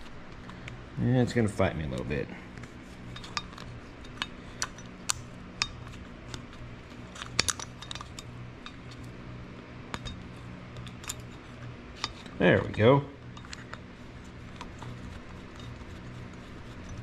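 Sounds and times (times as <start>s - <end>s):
steady low hum: 0.0s - 17.0s
small metal parts clicking: 3.1s - 9.0s.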